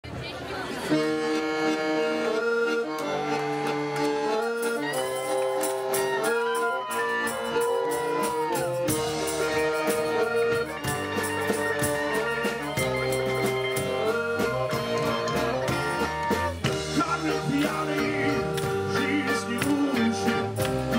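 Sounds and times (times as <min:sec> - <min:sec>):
accordion chords: 0:00.8 - 0:20.9
upright bass: 0:01.0 - 0:20.9
electric guitar: 0:02.3 - 0:20.9
drum kit: 0:08.0 - 0:20.9.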